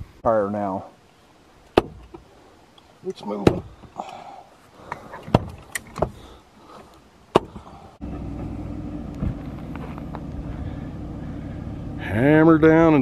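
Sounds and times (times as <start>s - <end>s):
sharp knocks and clunks: 1.7s - 2.3s, 3.3s - 4.0s, 4.9s - 6.2s, 7.3s - 8.5s
truck engine running: 8.0s - 13.0s.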